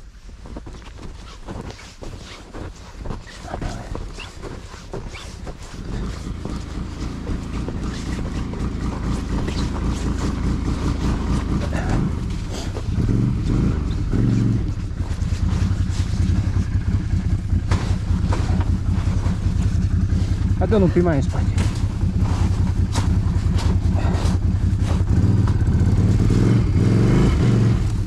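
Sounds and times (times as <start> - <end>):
atv engine revving: 3.4 - 28.0.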